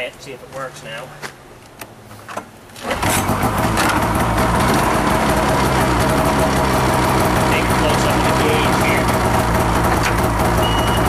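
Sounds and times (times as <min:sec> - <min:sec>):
snowmobile engine starting and idling: 0:02.8 - 0:11.0.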